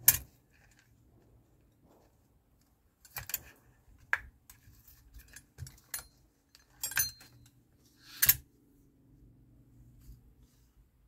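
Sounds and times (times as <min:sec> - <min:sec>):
metal hand tools clinking: 0:05.8 - 0:07.5.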